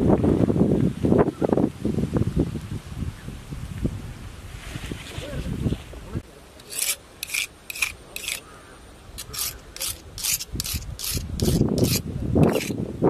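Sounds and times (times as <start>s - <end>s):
knife scraping on sharpening stone: 6.6s - 8.4s, 9.2s - 12.8s.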